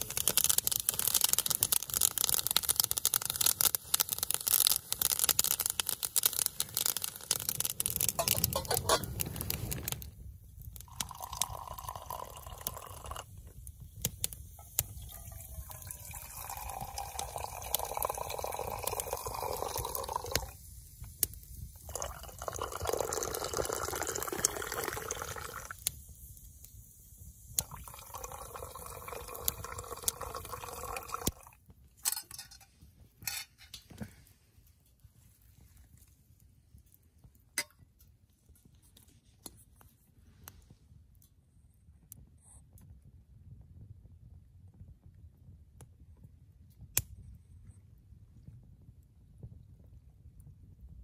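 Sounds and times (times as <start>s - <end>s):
tea pouring into metal mugs: 0.0s - 10.1s, 10.7s - 20.7s, 21.8s - 26.0s, 27.6s - 32.4s.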